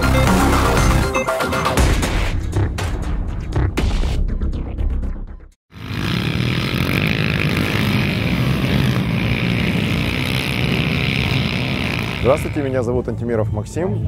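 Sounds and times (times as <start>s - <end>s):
quad bike engines running: 5.7s - 13.0s.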